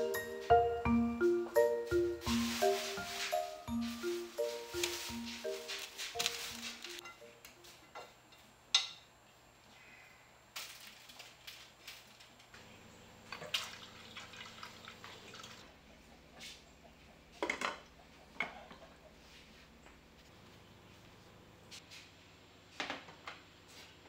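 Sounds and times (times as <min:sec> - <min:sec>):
tap water running into pot: 0:13.3 - 0:15.6.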